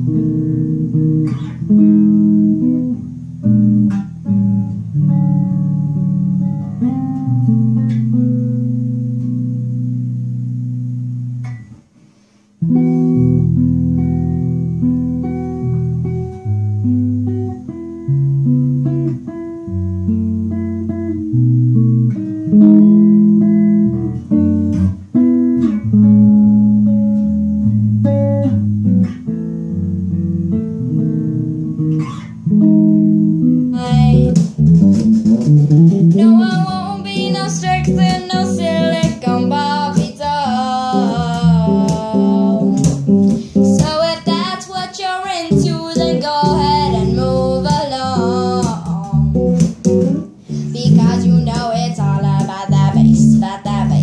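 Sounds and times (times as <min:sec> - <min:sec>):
electric bass played fingerstyle: 0:00.0 - 0:54.0
person singing: 0:33.7 - 0:34.4, 0:36.1 - 0:49.6, 0:50.5 - 0:54.0.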